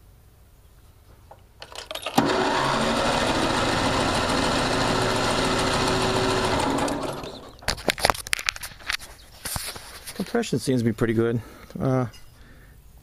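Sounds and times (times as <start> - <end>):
engine cranking without firing: 1.6 - 7.7.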